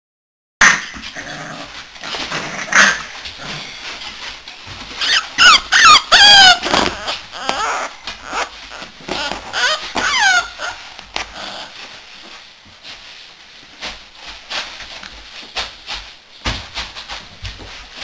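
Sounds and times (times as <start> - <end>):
puppies whining and yelping: 4.9 - 10.8.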